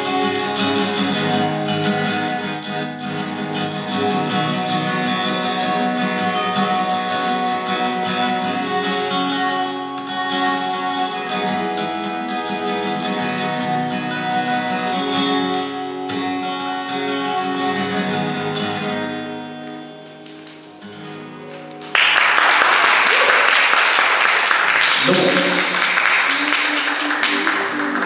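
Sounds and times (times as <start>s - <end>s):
solo acoustic guitar: 0.0s - 21.9s
audience applause: 21.9s - 28.0s.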